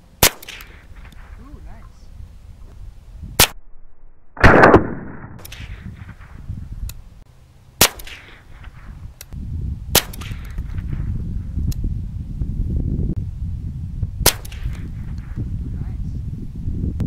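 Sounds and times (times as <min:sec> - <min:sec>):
gunshots: 0:00.2 - 0:01.5, 0:04.4 - 0:06.4, 0:07.8 - 0:08.8.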